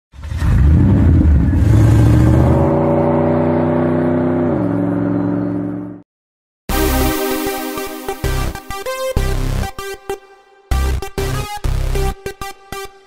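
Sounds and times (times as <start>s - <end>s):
logo intro rush and held tone: 6.7s - 10.0s.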